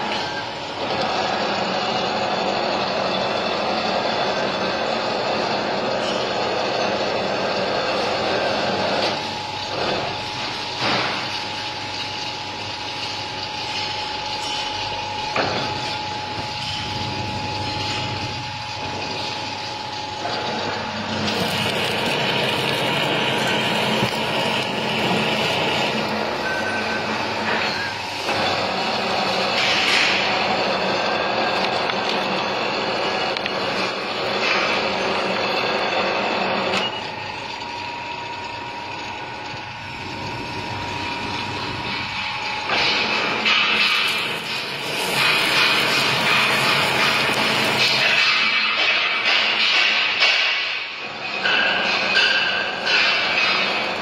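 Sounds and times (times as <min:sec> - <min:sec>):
metal lathe whining: 0:00.0 - 0:48.7.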